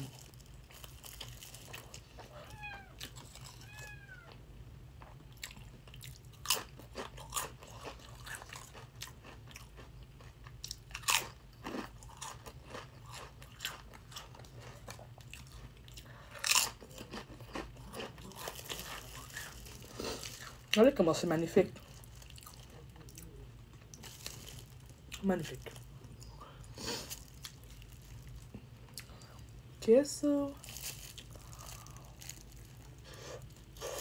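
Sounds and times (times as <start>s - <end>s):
chips crunching: 0.0s - 2.3s, 5.5s - 15.7s, 16.4s - 21.0s, 23.8s - 25.8s, 26.8s - 29.1s, 30.6s - 34.0s
chewing: 5.4s - 20.8s.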